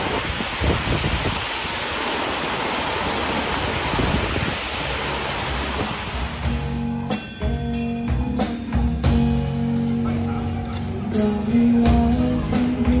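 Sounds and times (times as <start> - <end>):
heavy rain on a street: 0.0 - 6.7.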